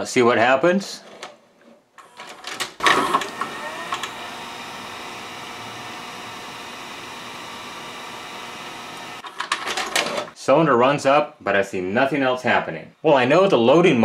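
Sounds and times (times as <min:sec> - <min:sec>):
cassette loading mechanism clatter: 0:02.0 - 0:04.2, 0:09.2 - 0:10.4
motor whining and humming: 0:02.8 - 0:09.3.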